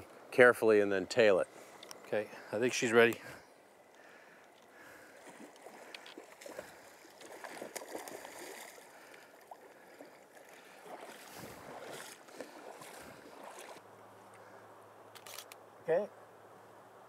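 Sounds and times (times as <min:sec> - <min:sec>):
fish splashing in river water: 0:05.0 - 0:13.8.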